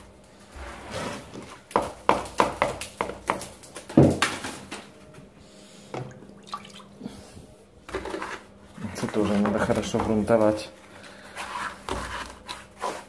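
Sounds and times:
stiff brush scrubbing a wall: 8.2s - 13.0s.

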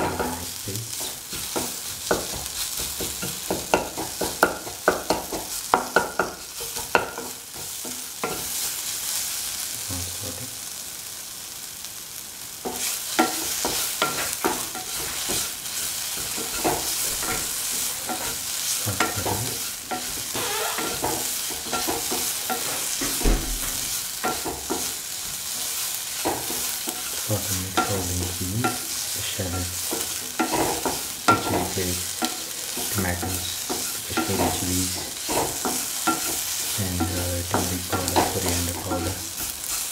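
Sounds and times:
vegetables sizzling in oil: 0.0s - 39.9s
spatula scraping a pan: 12.6s - 39.9s.

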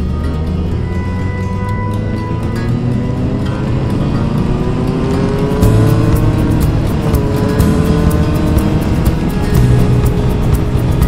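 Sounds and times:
background music: 0.0s - 11.0s
motorcycle engine running: 0.0s - 11.0s.

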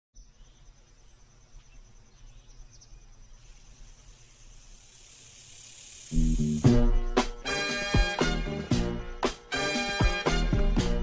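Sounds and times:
insect trilling: 0.2s - 7.4s
hiss: 3.4s - 7.9s.

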